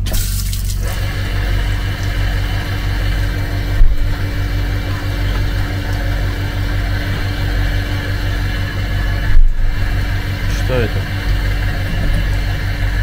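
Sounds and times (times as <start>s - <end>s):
vacuum toilet pump humming: 0.0s - 13.0s
low thump: 3.7s - 4.3s.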